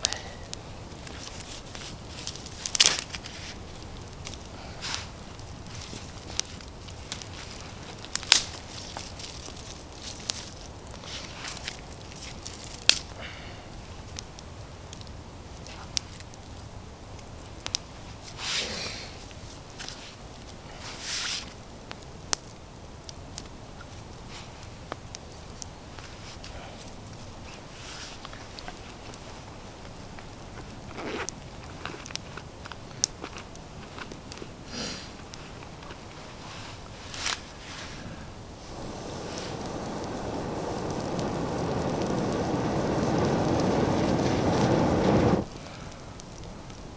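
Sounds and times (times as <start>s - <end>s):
campfire popping: 0.0s - 46.9s
faint steady hiss: 0.0s - 46.9s
sticks rustling: 1.0s - 13.0s, 35.3s - 45.5s.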